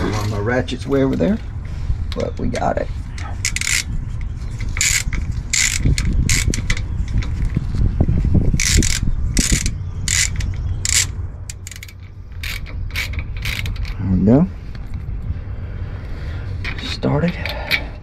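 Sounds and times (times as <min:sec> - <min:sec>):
steady low rumble: 0:00.0 - 0:18.0
hand ratchet clicking: 0:03.4 - 0:03.9, 0:04.6 - 0:07.3, 0:08.6 - 0:14.0.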